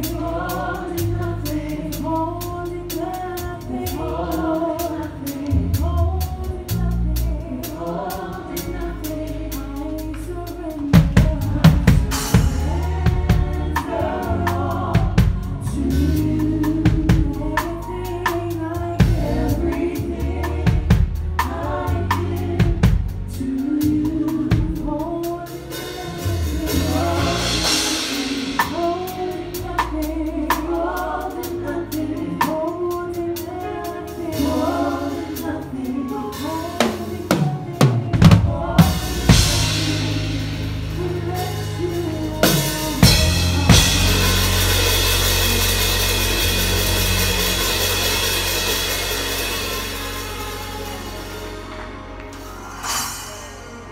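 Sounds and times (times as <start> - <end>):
drum kit playing: 0.0 - 53.9
keyboard playing: 0.0 - 53.9
people singing: 0.0 - 53.9
cymbal washes: 52.6 - 53.9.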